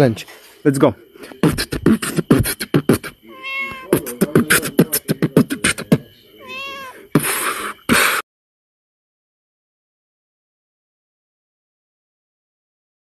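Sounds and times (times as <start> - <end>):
person beatboxing: 1.2 - 6.1, 7.2 - 8.2
cat meowing: 3.2 - 4.2, 6.4 - 7.1.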